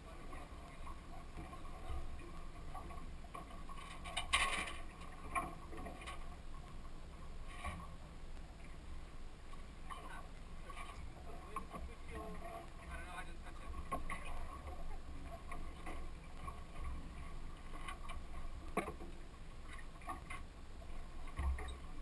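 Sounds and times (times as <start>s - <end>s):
muffled boat engine rumble: 0.0s - 22.0s.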